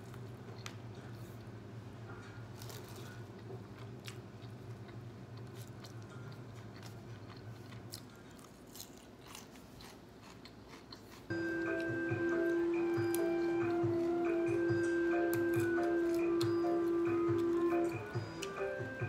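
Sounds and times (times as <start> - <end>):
low room hum: 0.0 - 19.0
chopsticks clicking and crunching: 2.5 - 19.0
music with chiming tones: 11.3 - 19.0.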